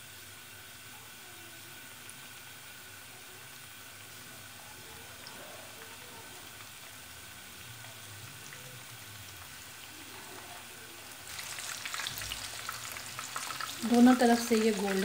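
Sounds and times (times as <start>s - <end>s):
food sizzling in hot oil: 0.0s - 15.0s
crackling oil: 6.6s - 15.0s.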